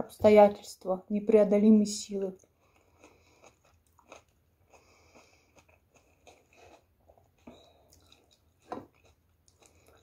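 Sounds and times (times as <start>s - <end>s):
chewing crunchy fried snacks: 2.4s - 10.0s.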